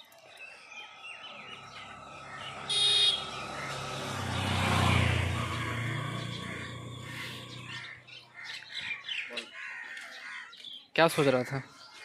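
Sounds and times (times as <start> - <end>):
birds chirping: 0.0 - 12.0
motorcycle passing by: 1.4 - 8.2.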